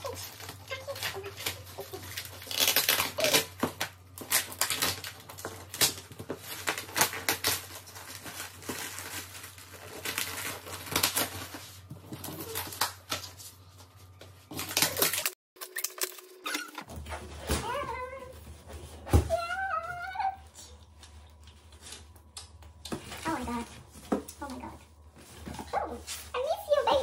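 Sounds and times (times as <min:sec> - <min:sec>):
plastic wrap crackling: 0:00.0 - 0:16.8.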